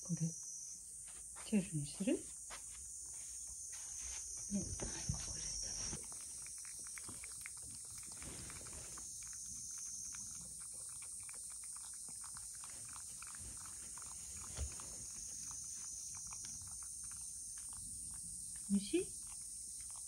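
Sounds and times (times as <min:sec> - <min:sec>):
cat tongue licking clicks: 0:06.0 - 0:20.0.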